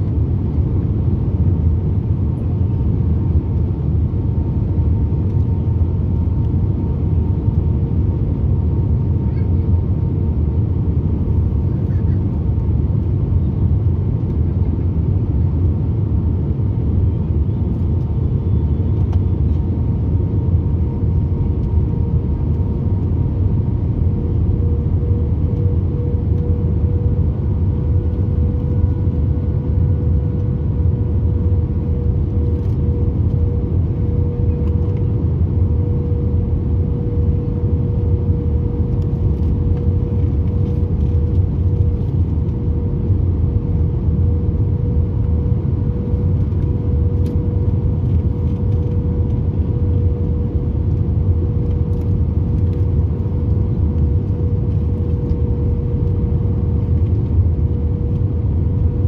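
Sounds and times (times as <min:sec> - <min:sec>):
steady cabin hum: 0:18.2 - 0:59.0.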